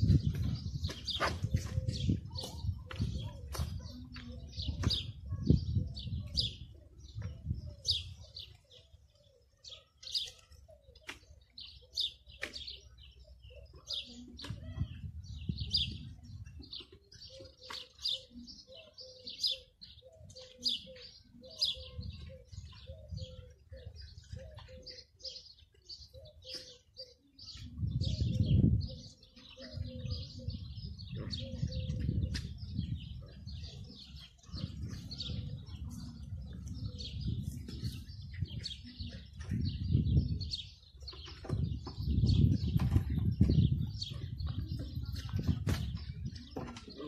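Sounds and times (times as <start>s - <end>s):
small birds chirping: 0.0s - 47.0s.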